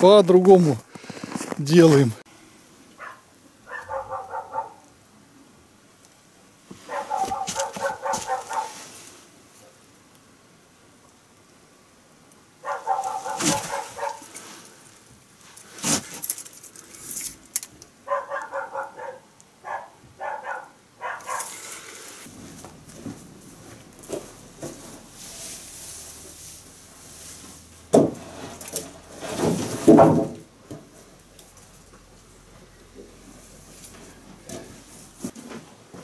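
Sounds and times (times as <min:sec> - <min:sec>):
soft rustling: 0:06.7 - 0:09.3
loud knocks: 0:29.8 - 0:30.4.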